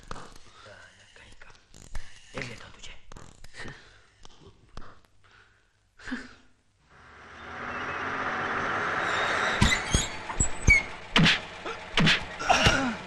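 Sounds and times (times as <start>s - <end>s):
street traffic noise: 6.9s - 13.0s
sharp blows and thuds: 9.6s - 12.9s.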